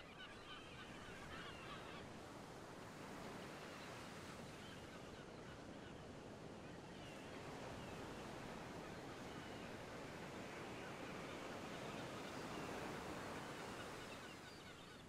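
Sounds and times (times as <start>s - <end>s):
distant bird calls: 3.5s - 15.0s.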